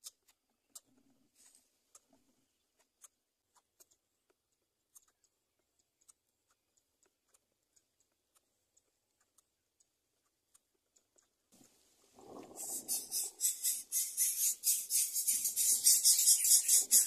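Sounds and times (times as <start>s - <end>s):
faint small clicks: 0.0s - 12.8s.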